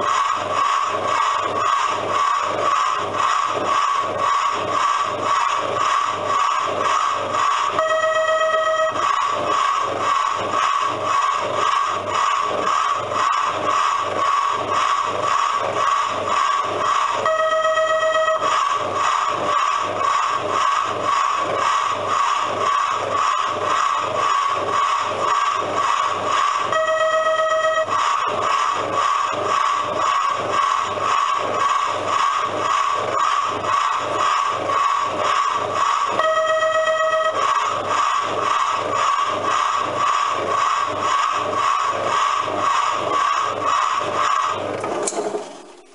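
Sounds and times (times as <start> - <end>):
recorded steam locomotive chuffing: 0.0 - 45.9
steam whistle blast: 7.8 - 9.0, 17.2 - 18.6, 26.7 - 28.0, 36.2 - 37.5.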